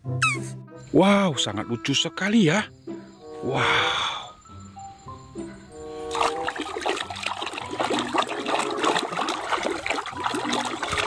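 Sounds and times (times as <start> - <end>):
water sloshing and splashing: 6.0 - 11.0.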